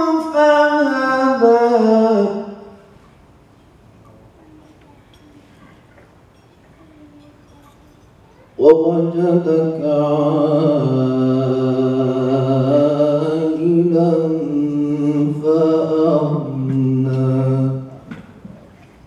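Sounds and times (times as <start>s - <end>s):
man chanting: 0.0s - 2.7s, 8.6s - 18.0s.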